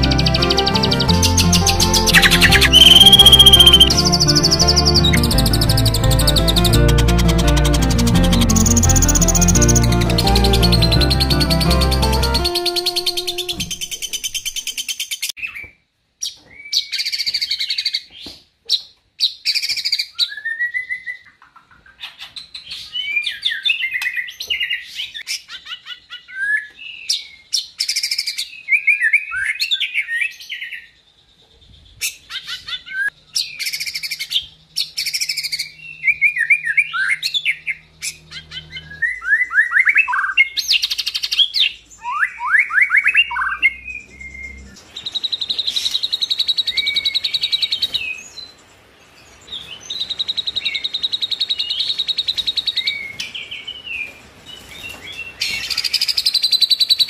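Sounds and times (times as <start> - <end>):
bird rapid trills: 0.0 - 4.9
bird singing whistled phrases: 0.8 - 5.6.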